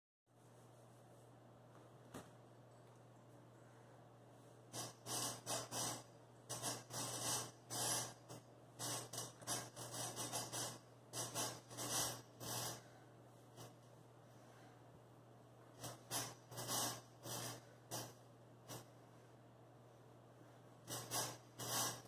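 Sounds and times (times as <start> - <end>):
horizontal bar rasping: 4.8 - 12.9, 15.8 - 18.9, 20.9 - 22.0.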